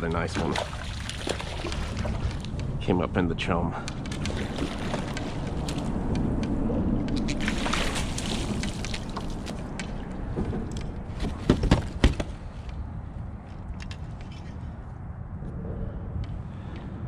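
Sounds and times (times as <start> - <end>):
water sloshing and running: 0.0 - 2.9, 4.0 - 6.1, 7.2 - 10.6
fish thrashing and splashing: 0.2 - 2.8, 3.9 - 6.1, 7.1 - 10.2
sharp knocks on kayak: 10.3 - 12.4.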